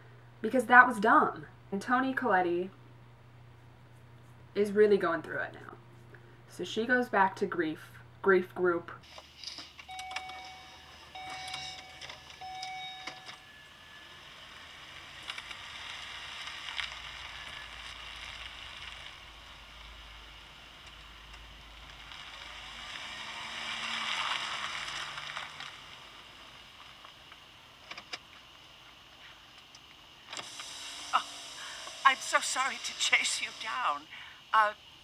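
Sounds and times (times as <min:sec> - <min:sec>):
car engine rumble: 0:09.8 - 0:29.5
car warning chime: 0:09.9 - 0:13.6
road noise: 0:10.6 - 0:34.2.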